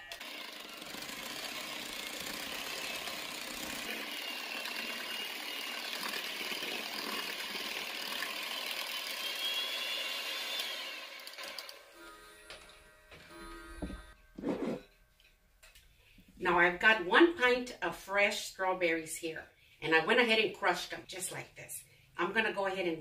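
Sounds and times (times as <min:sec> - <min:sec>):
electric hand mixer whirring: 0:00.0 - 0:14.2.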